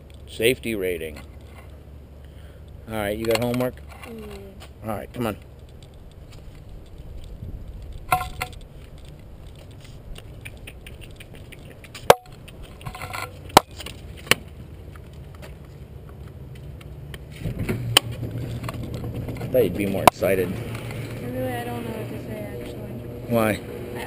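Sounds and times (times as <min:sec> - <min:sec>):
camera rustling while walking: 0:03.2 - 0:21.8
sharp clicks: 0:05.4 - 0:13.9.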